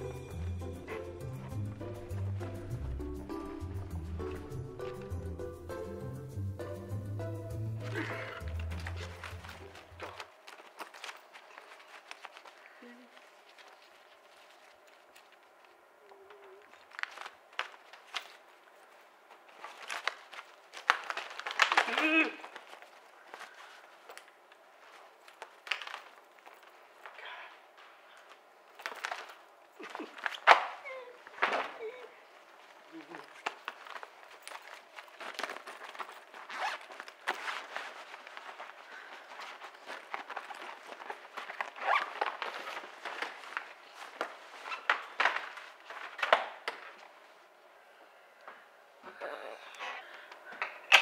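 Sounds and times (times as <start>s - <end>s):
papers rustling: 7.8s - 47.6s.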